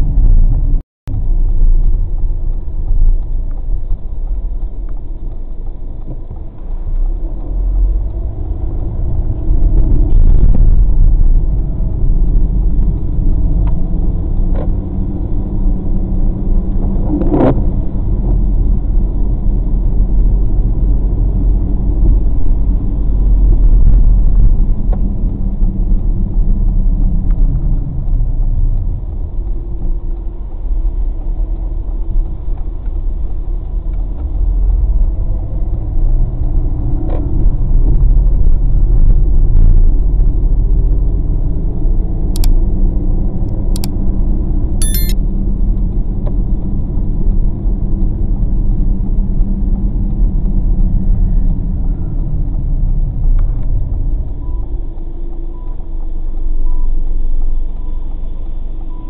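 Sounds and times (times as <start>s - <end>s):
car engine and tyre rumble: 0.0s - 44.8s, 45.4s - 59.0s.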